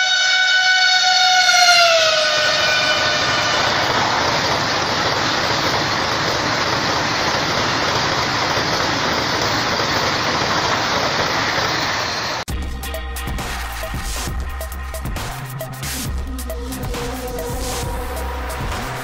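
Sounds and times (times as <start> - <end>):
train wheels on rails: 1.0 - 12.5.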